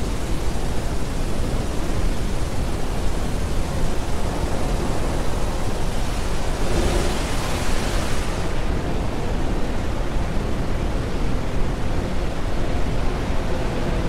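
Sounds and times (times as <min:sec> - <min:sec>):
loud wash of noise: 0:02.8 - 0:10.4.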